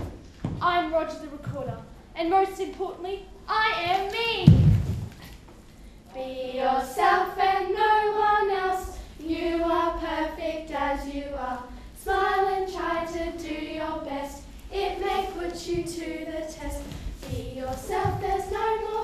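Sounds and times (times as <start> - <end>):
girls singing unaccompanied: 6.1 - 19.0.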